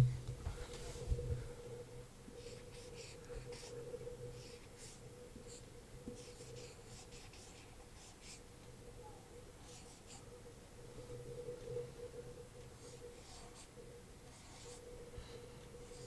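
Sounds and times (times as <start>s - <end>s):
marker squeaking on whiteboard: 2.5s - 3.7s.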